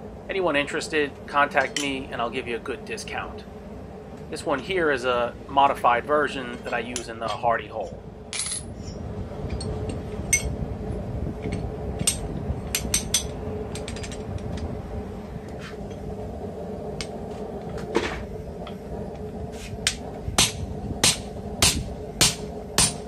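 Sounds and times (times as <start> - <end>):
steady low hum: 0.0 - 23.0
hammer striking punch: 20.4 - 23.0.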